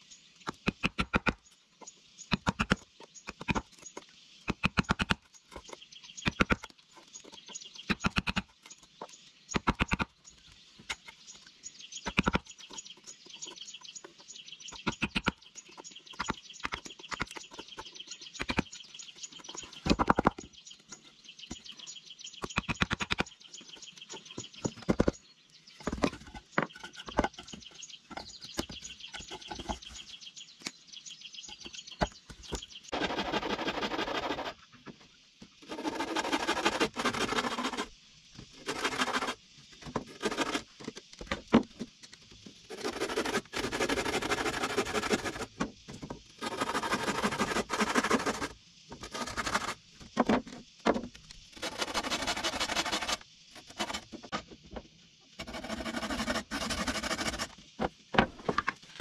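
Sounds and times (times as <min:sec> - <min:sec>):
birds chirping: 0:00.0 - 0:59.0
hand tool scraping wood: 0:25.8 - 0:30.1, 0:31.5 - 0:34.7, 0:35.6 - 0:37.9, 0:38.5 - 0:41.9, 0:42.6 - 0:50.5, 0:51.5 - 0:54.5, 0:55.4 - 0:59.0.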